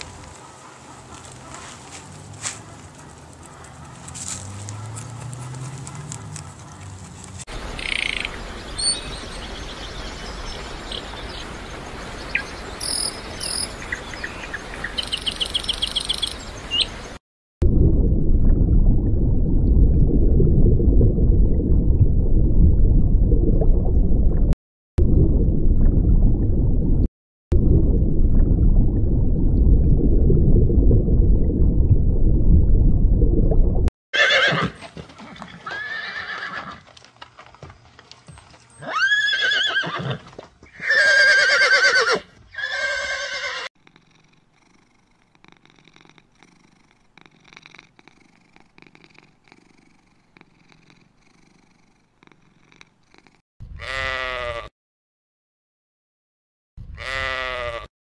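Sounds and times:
loud low rumbling noise: 17.6 - 33.9
horse whinnying: 34.2 - 34.8, 35.4 - 36.8, 38.8 - 43.7.

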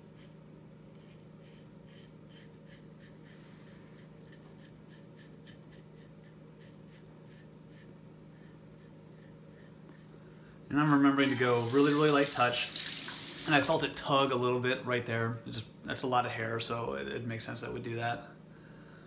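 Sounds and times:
razor scraping stubble: 0.0 - 10.4.

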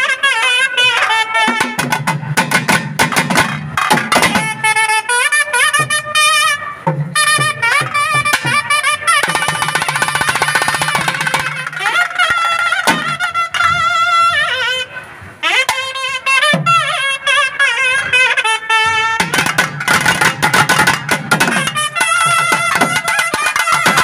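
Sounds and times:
wavering reed pipe melody: 0.0 - 24.0
rapid drum strokes: 0.9 - 4.9, 5.6 - 14.0, 18.8 - 24.0.

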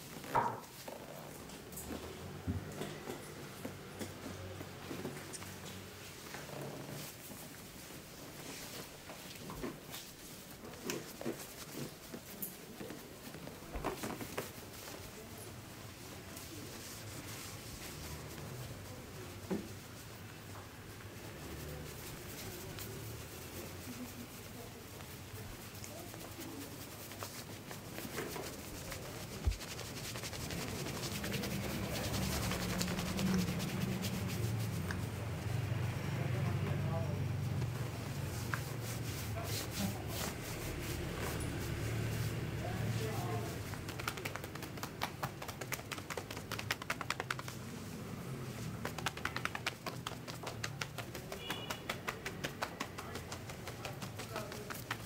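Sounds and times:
shirt fabric rustling: 5.2 - 35.5, 36.9 - 55.0
hands tapping and patting: 8.4 - 15.0, 23.8 - 35.2, 43.5 - 47.9, 48.6 - 55.0.

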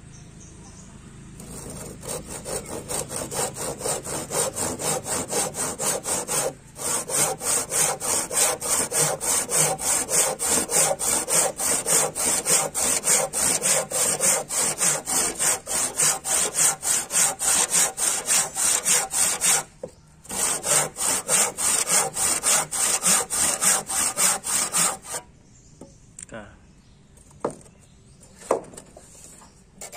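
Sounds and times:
hand saw cutting wood: 1.4 - 25.3.

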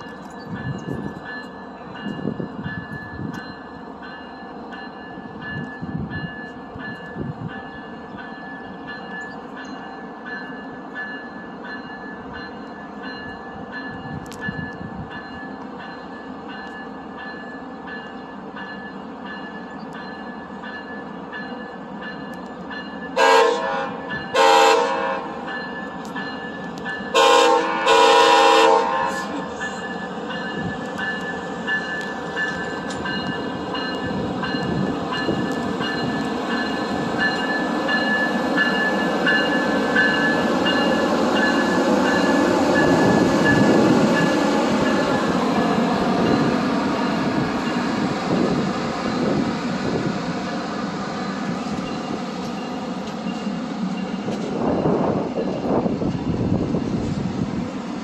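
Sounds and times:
train bell ringing: 0.0 - 57.1
passenger train passing: 0.0 - 58.0
locomotive air horn blasts: 23.2 - 25.5, 27.1 - 29.6.

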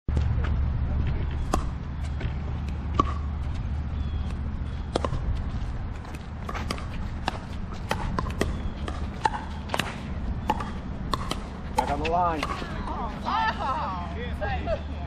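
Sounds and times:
ball bouncing on court: 0.1 - 13.0
paddles hitting plastic ball: 6.0 - 12.8.

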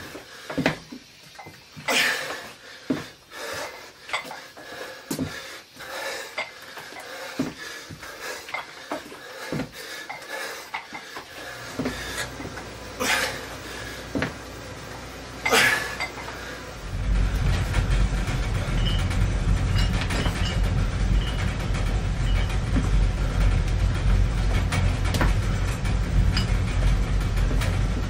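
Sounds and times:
loud low rumble: 16.7 - 28.0
dumbbells clinking and knocking: 18.6 - 23.0, 26.2 - 27.5.

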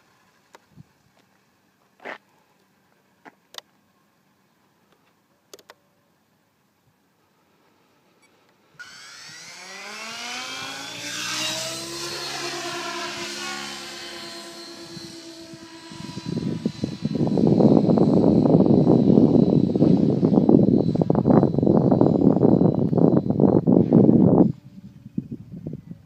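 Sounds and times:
rc helicopter motor whine: 8.8 - 25.6.

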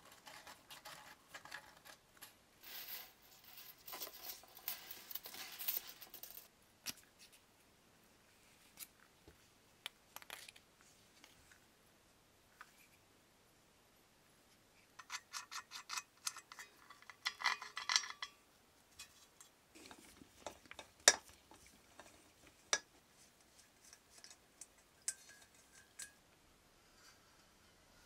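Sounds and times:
metal parts clicking and clinking: 0.2 - 6.5, 15.0 - 18.4, 23.8 - 26.2.

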